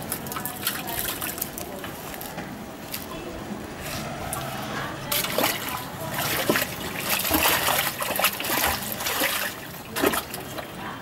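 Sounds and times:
sludge splashing and sloshing: 3.8s - 10.8s.

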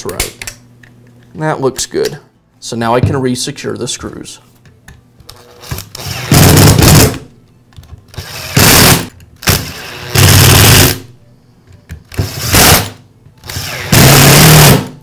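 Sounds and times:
power screwdriver driving screws: 12.1s - 14.8s.

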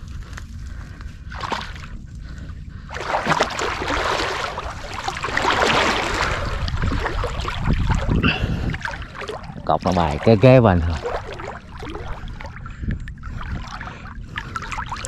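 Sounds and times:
low rumble: 0.0s - 15.0s
water sloshing and splashing: 0.0s - 15.0s.

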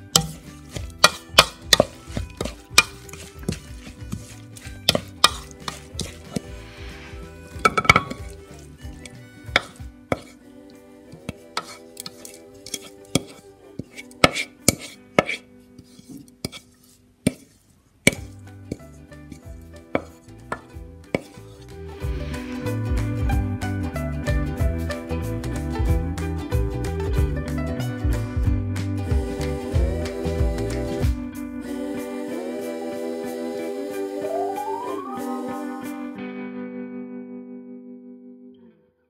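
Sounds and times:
wooden spoon scraping bowl: 0.0s - 10.4s, 11.1s - 22.8s
soft background music: 0.0s - 17.4s, 18.0s - 36.4s.

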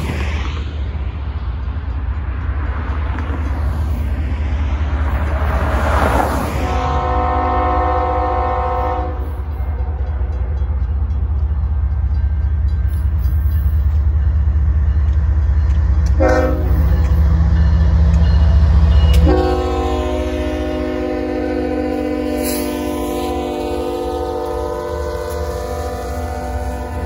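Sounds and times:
locomotive air horn blasts: 6.6s - 9.5s, 16.2s - 17.0s, 19.1s - 27.0s.

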